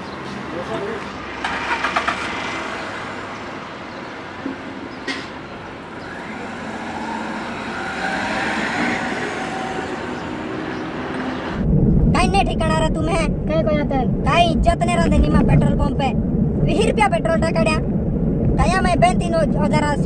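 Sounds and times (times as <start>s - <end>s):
road traffic hiss and rumble: 0.0s - 20.0s
car driving off: 1.0s - 3.9s, 4.9s - 12.1s.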